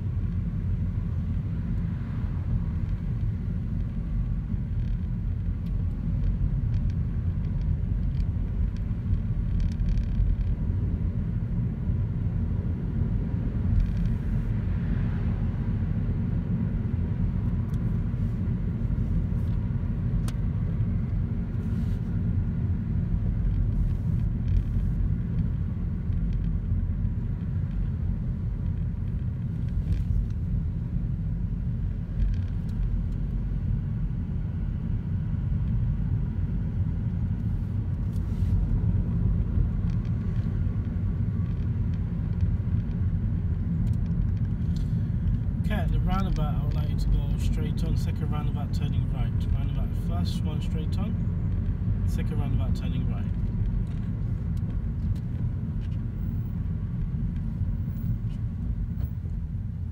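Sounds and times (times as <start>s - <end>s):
car interior road rumble: 0.0s - 59.9s.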